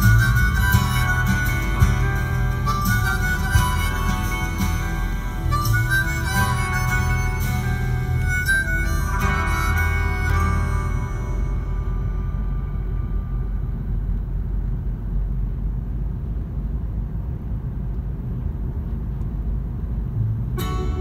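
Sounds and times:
music: 0.0 - 14.1, 20.6 - 21.0
car driving on road: 0.0 - 21.0.

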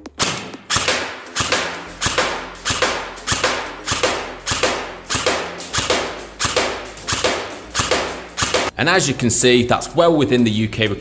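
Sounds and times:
airsoft rifle shots: 0.2 - 8.7.

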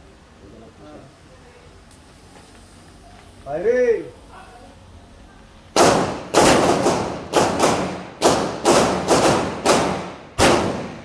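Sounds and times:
pistol shots with echo: 5.8 - 11.0.

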